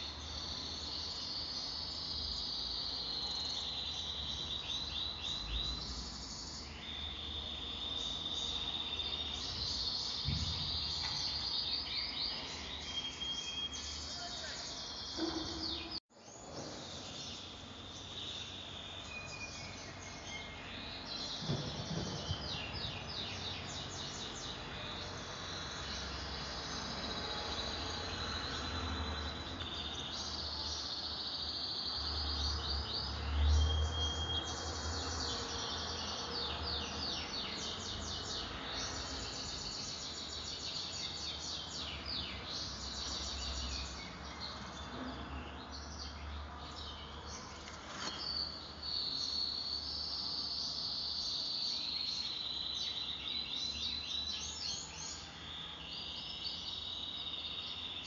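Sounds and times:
insects chirping: 0:00.0 - 0:16.0, 0:16.8 - 0:44.4.

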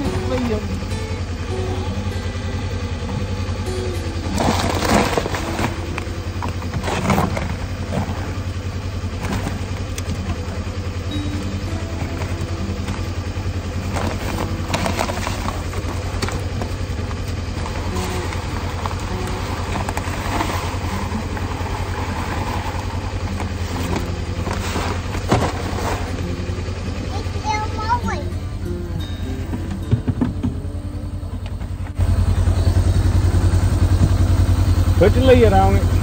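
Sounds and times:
vehicle engine humming: 0:00.0 - 0:36.0
knocks and rattles: 0:29.4 - 0:32.0.

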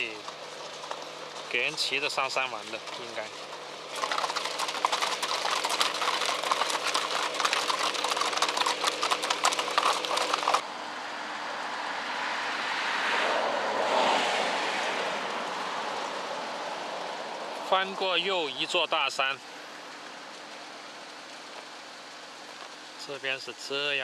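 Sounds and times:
horse hooves on gravel: 0:00.0 - 0:10.6.

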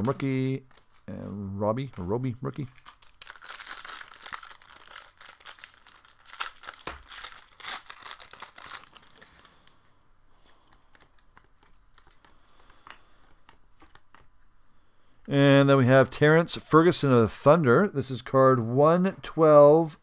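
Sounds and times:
foil wrapper tearing and crinkling: 0:02.6 - 0:09.5
cards ticking when handled: 0:10.4 - 0:14.4.

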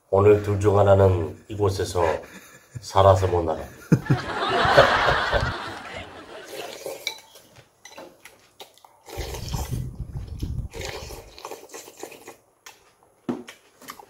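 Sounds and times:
people laughing: 0:03.8 - 0:06.9
dishes and cutlery clinking: 0:06.5 - 0:08.4
muffled low rumble: 0:09.4 - 0:10.8.

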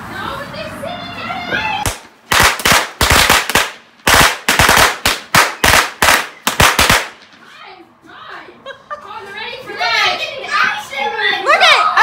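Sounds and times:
fireworks bangs: 0:01.4 - 0:07.4.

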